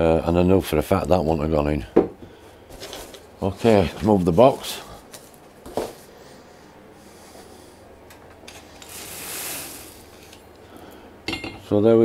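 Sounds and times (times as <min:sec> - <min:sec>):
knock on workbench: 0:02.0 - 0:02.2.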